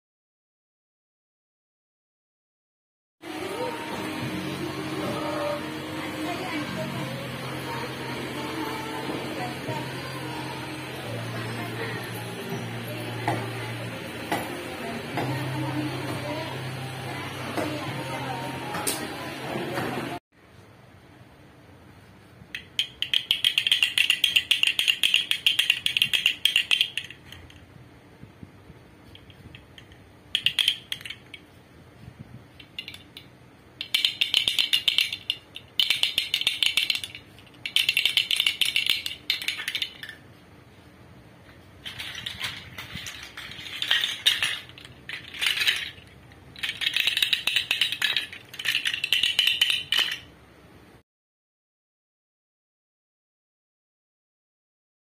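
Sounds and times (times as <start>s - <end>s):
wooden rattles clattering: 41.8s - 50.3s.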